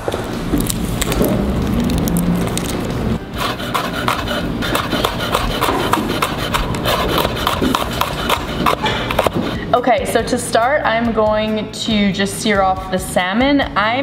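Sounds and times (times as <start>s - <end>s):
fingers rubbing garlic skin: 1.7s - 9.6s.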